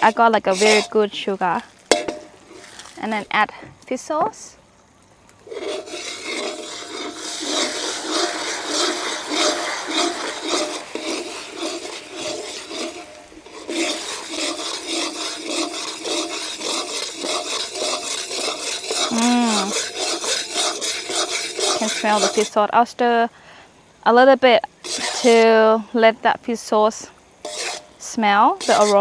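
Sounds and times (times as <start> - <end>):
metal ladle scraping pan: 0.0 - 1.2, 1.8 - 2.9, 5.4 - 22.6, 24.8 - 25.5, 27.4 - 29.0
sauce sizzling and bubbling in wok: 0.0 - 29.0.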